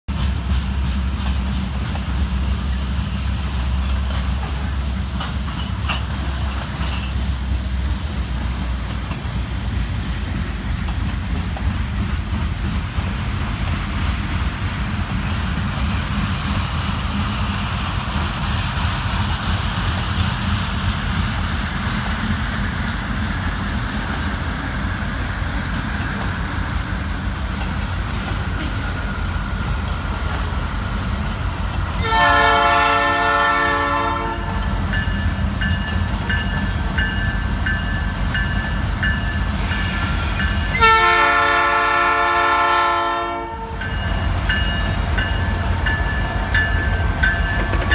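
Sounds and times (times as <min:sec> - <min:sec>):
diesel locomotive rumble: 0:00.0 - 0:47.9
train air horn blasts: 0:32.0 - 0:34.7, 0:39.9 - 0:43.9.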